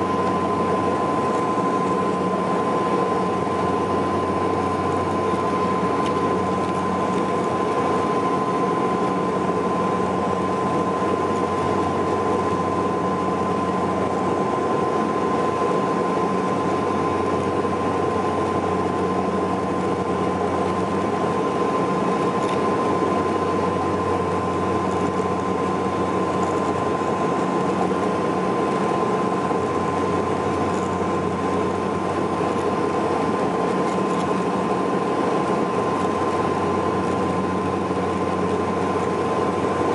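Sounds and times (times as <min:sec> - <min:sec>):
turboprop engines droning: 0:00.0 - 0:39.9.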